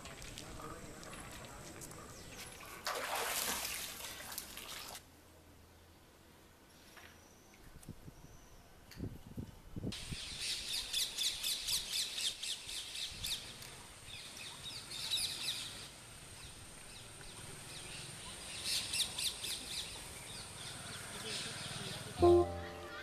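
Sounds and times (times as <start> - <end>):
faint high-pitched tone: 22.2 - 23.0.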